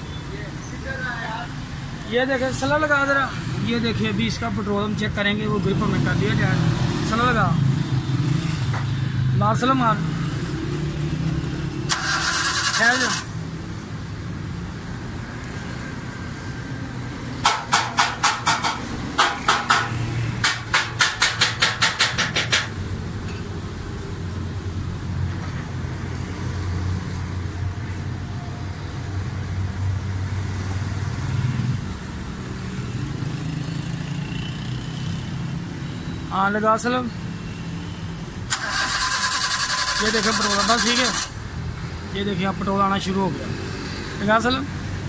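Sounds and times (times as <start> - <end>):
car engine cranking on starter: 11.9 - 13.3, 38.5 - 41.4.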